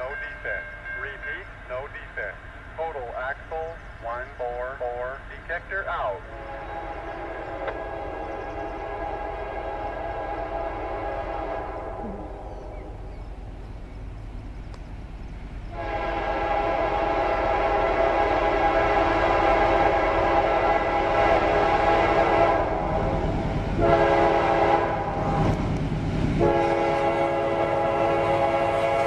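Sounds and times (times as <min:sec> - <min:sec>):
rumble of passing train: 0:00.0 - 0:29.0
train air horn blast: 0:06.2 - 0:12.5, 0:15.7 - 0:23.2, 0:23.8 - 0:25.6, 0:26.4 - 0:29.0.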